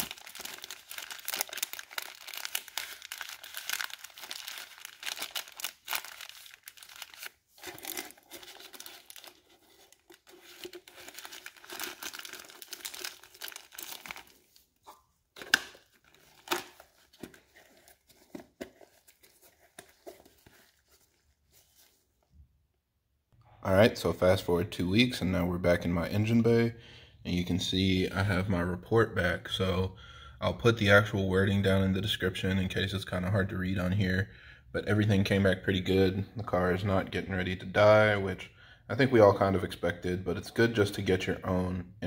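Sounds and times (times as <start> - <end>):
paper and plastic bag crinkling: 0.0 - 22.0.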